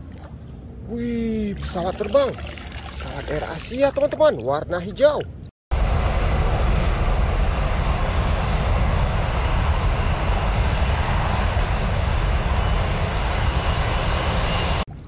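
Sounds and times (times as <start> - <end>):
jet engines roaring: 5.8 - 14.8.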